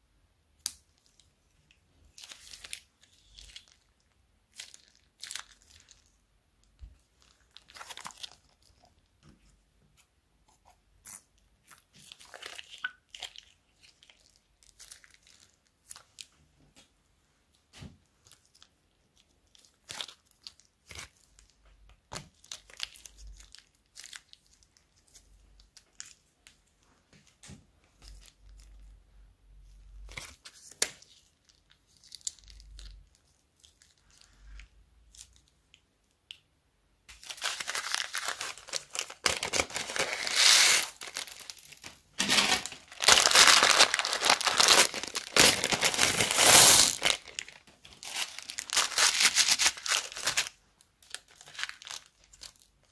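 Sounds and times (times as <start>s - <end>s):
plastic bags crinkling: 37.2s - 52.9s.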